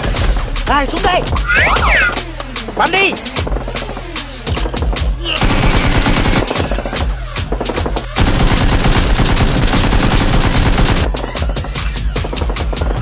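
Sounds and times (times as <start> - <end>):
automatic gunfire sound effect: 5.4 - 11.1.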